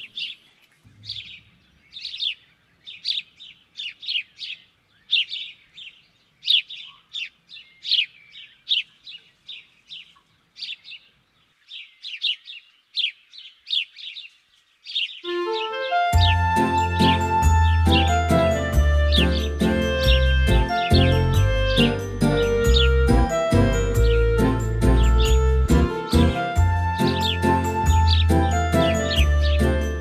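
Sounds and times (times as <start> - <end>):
songbird chirping: 0.0 - 30.0
gentle chiming music: 15.3 - 30.0.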